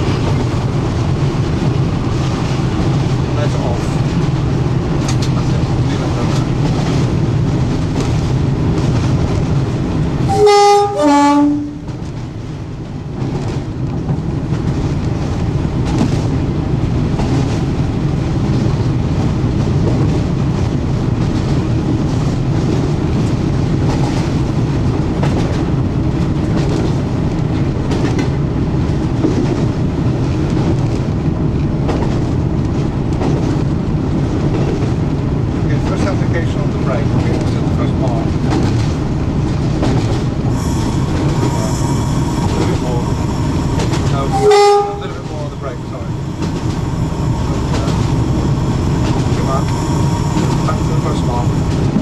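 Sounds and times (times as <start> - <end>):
locomotive engines droning: 0.0 - 52.0
wheels clicking over rail joints: 2.4 - 9.7, 25.1 - 33.8
two-tone train horn: 10.3 - 11.9, 40.5 - 42.8, 43.8 - 45.3.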